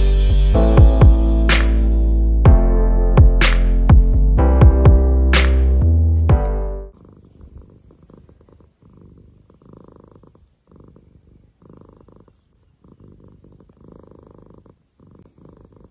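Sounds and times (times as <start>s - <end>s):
cat purring: 6.9s - 15.9s.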